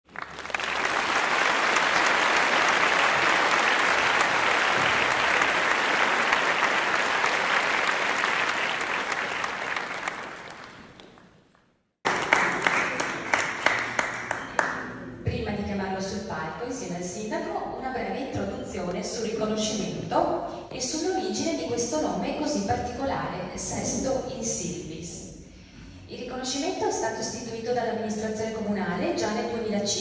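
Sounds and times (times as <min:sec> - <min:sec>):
audience applauding: 0:00.0 - 0:14.8
scattered claps: 0:00.1 - 0:14.8.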